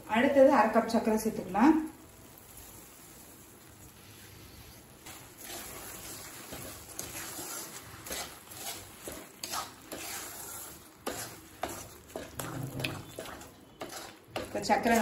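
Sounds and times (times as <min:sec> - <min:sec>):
light sizzle: 0:00.0 - 0:15.0
spatula scraping a pan: 0:04.0 - 0:15.0.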